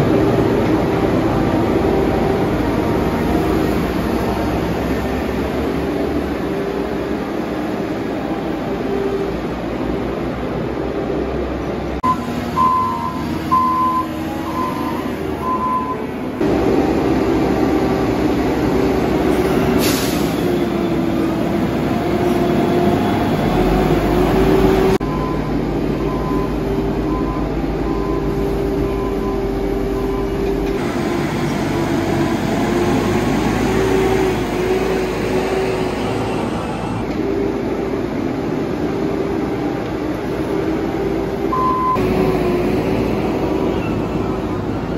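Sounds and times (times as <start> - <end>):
diesel engines under load: 0.0 - 44.9
backup alarm beeping: 12.0 - 16.1, 41.5 - 42.1.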